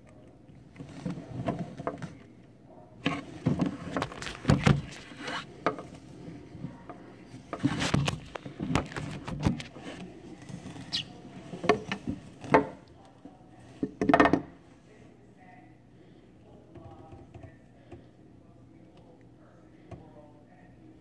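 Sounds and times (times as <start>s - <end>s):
scratchy rubs and scrapes: 3.0s - 6.6s.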